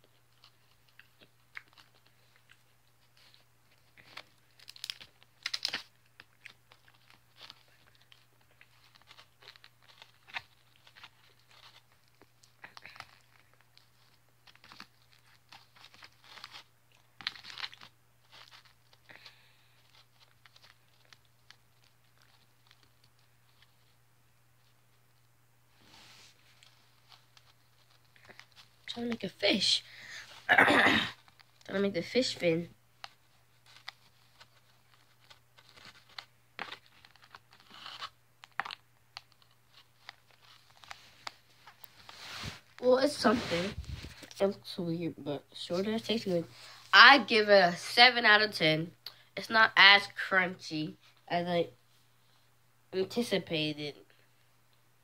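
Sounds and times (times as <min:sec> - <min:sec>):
crunchy snack crackling: 0:00.4 - 0:02.7, 0:04.0 - 0:23.2.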